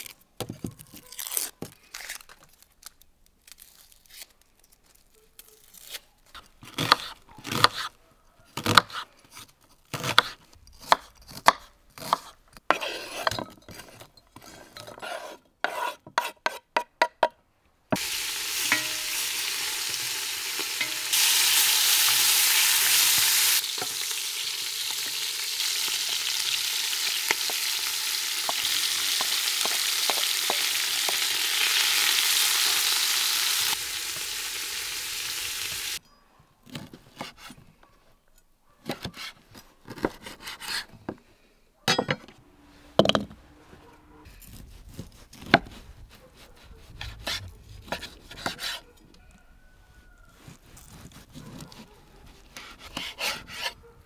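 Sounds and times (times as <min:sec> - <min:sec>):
meat sizzling in a pot: 0:18.0 - 0:36.0.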